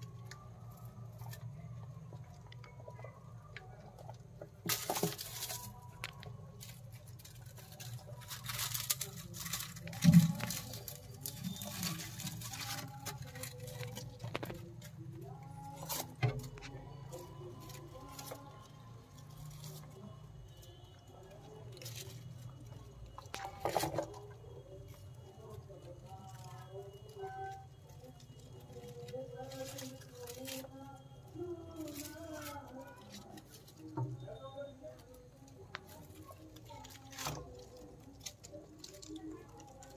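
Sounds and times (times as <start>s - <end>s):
rats scurrying on newspaper: 3.9s - 39.9s.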